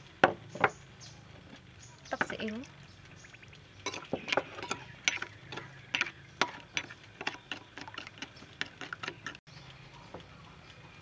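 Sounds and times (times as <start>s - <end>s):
spoon clinking against glass bowl: 3.8s - 7.6s.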